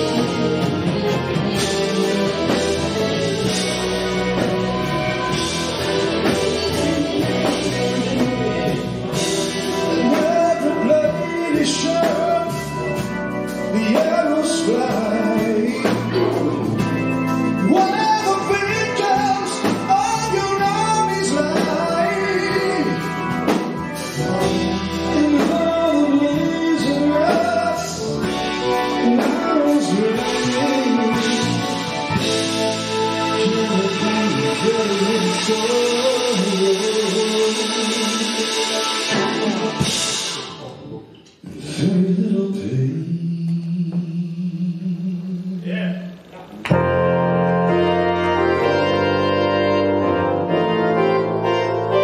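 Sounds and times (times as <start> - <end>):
live rock band playing: 0.0 - 52.0
man singing: 6.2 - 23.6, 24.3 - 38.9, 41.4 - 46.8.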